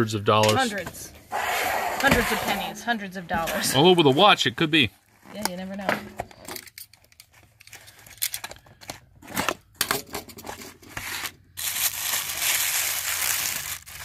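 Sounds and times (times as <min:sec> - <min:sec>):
tissue paper crinkling: 0:11.0 - 0:14.0.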